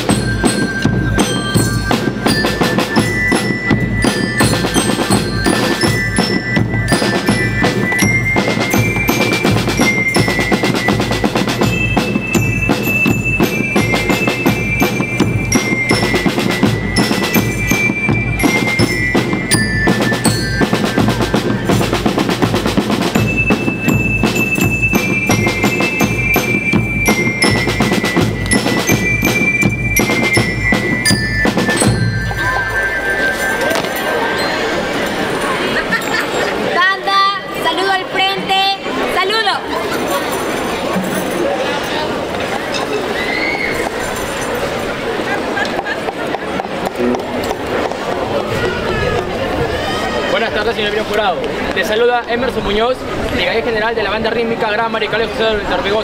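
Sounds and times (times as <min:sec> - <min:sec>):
snare and bass drum beats: 0:00.0 - 0:32.8
bell lyre melody: 0:00.0 - 0:37.7.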